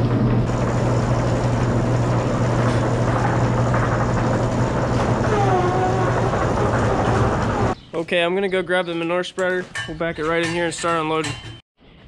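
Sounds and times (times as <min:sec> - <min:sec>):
conveyor humming: 0:00.0 - 0:07.8.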